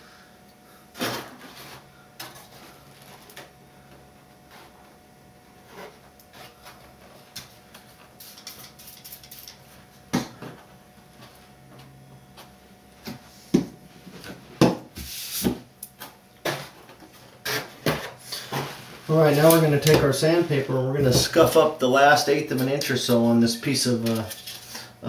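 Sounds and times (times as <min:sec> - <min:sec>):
objects thumping on workbench: 0:13.0 - 0:15.6.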